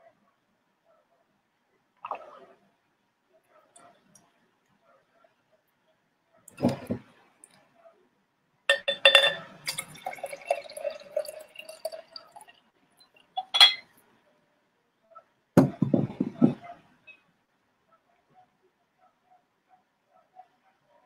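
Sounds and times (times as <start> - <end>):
glass clinking: 8.7 - 12.4, 13.4 - 13.9.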